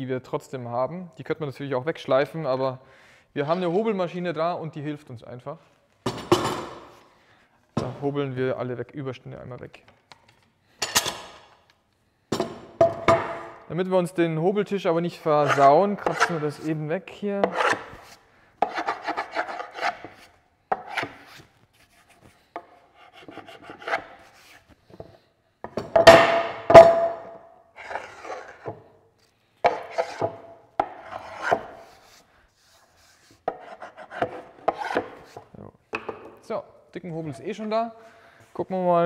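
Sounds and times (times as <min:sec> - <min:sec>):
scraper rasping on wood: 0:15.4 - 0:16.5, 0:17.5 - 0:20.2, 0:33.5 - 0:35.1.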